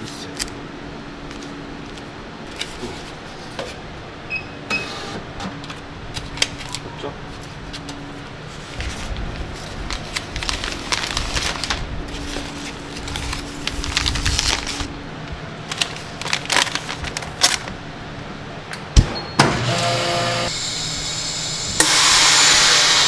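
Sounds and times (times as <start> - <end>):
plastic bag crinkling: 8.8 - 15.0, 15.6 - 17.8
vacuum sealer pump running: 19.0 - 23.0.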